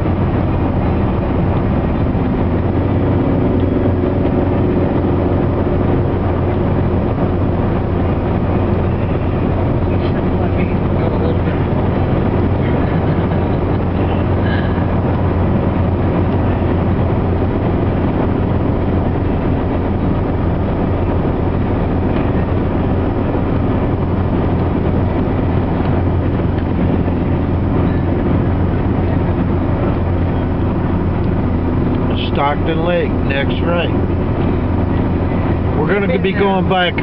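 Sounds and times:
road and engine noise in car: 0:00.0 - 0:37.0.

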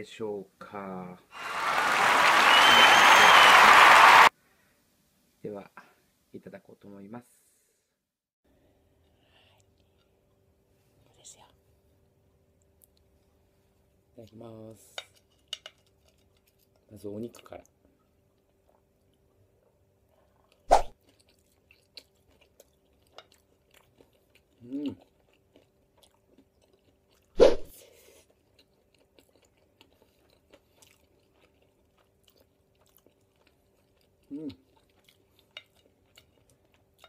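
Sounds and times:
soft chewing clicks: 0:12.6 - 0:13.3, 0:14.2 - 0:27.3, 0:28.2 - 0:37.0
person humming mm: 0:34.3 - 0:34.6.

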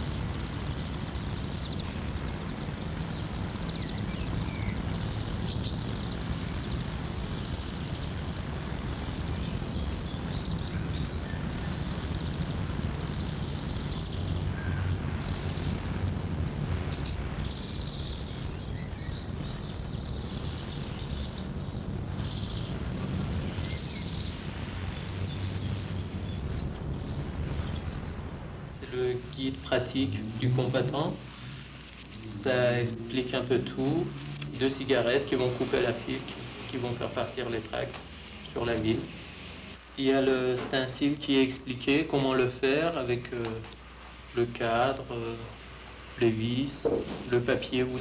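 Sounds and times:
low rumble: 0:00.0 - 0:30.8
birds chirping: 0:00.0 - 0:48.0.

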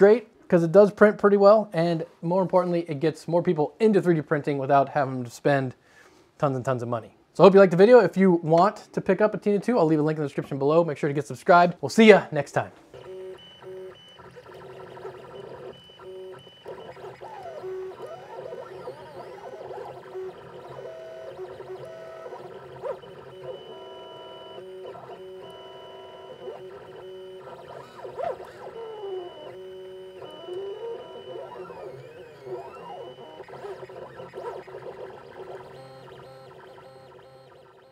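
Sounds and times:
printer stepper motors whining: 0:13.0 - 0:37.9.

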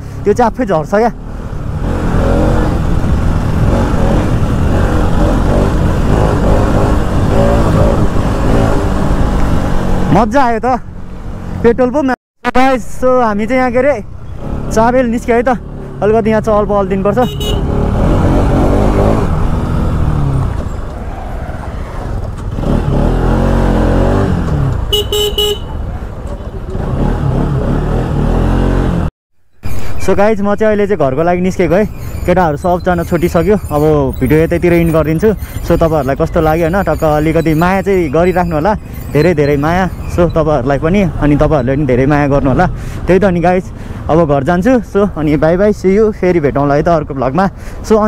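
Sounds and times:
motorcycle running: 0:00.0 - 0:11.8, 0:13.5 - 0:21.0, 0:21.6 - 0:29.1, 0:29.7 - 0:47.0
motorcycle engine accelerating: 0:01.2 - 0:10.2, 0:14.3 - 0:20.8, 0:22.0 - 0:25.1, 0:26.4 - 0:29.1
pulsing high beep: 0:32.2 - 0:40.4.

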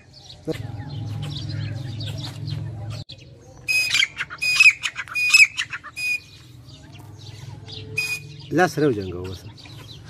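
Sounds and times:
bird calling harshly: 0:03.6 - 0:06.6, 0:07.4 - 0:10.0.

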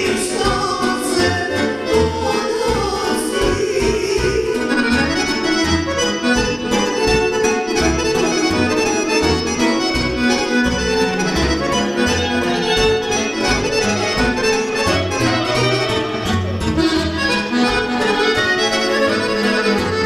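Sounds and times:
lead melody: 0:00.0 - 0:20.0.

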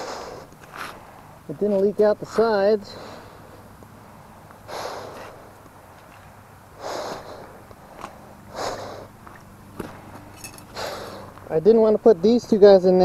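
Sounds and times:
person breathing hard: 0:00.0 - 0:01.4, 0:02.8 - 0:04.0, 0:04.6 - 0:05.6, 0:06.7 - 0:09.2, 0:09.8 - 0:11.4
steady low hum: 0:00.0 - 0:13.0.

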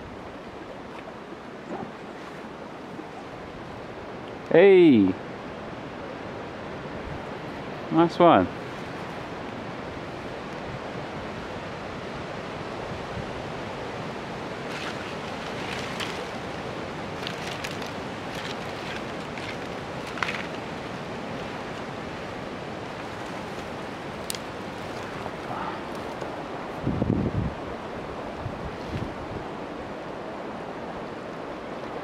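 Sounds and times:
campfire crackling and snapping: 0:14.8 - 0:21.5, 0:23.5 - 0:26.3.

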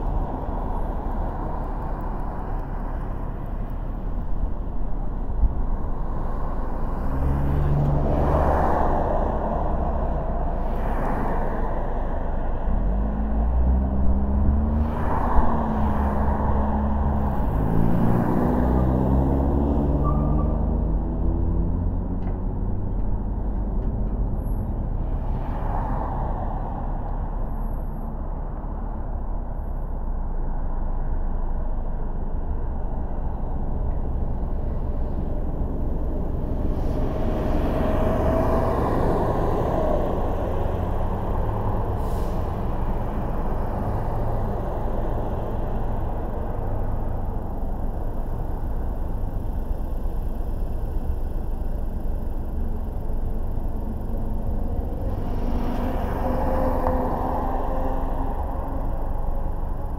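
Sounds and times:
car road and engine rumble: 0:00.0 - 0:59.9
vehicles passing: 0:00.0 - 0:59.9
short high squeal: 0:19.9 - 0:20.7.

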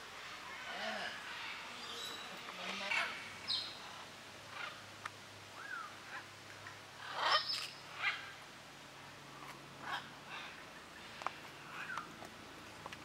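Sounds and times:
parrots calling: 0:00.2 - 0:04.8, 0:07.0 - 0:08.4, 0:09.8 - 0:10.6.

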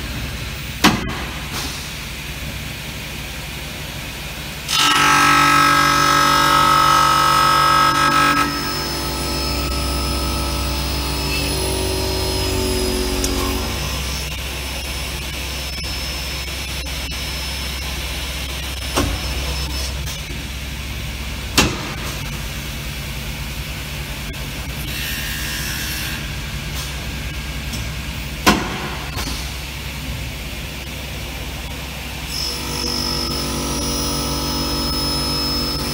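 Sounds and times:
machine tones: 0:04.7 - 0:20.8, 0:32.3 - 0:35.9
drilling machine motors humming: 0:04.8 - 0:20.2, 0:32.2 - 0:35.9.

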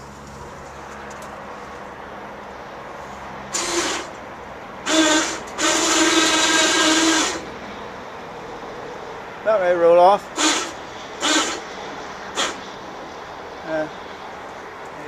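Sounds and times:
winch motor whining: 0:03.5 - 0:04.2, 0:04.8 - 0:07.6, 0:09.8 - 0:12.7.

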